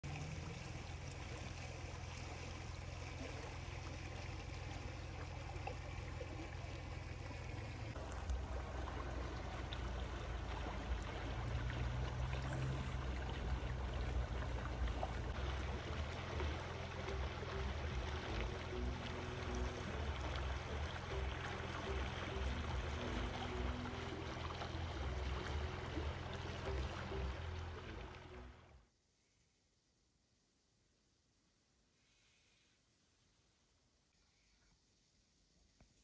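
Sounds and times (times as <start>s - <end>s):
low rumble: 0.0s - 28.7s
stream rushing: 0.0s - 28.7s.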